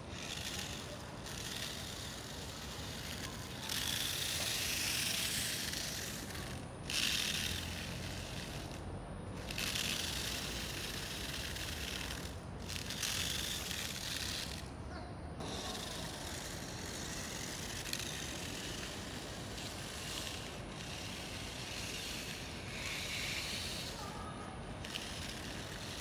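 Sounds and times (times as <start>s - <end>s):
toy car electric motors whirring: 0.0s - 26.0s.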